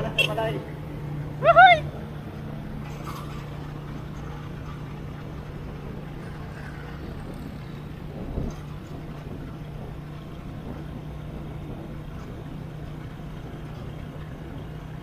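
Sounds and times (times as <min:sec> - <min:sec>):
motorcycle engine cruising: 0:00.0 - 0:15.0
wind and road noise: 0:00.0 - 0:15.0.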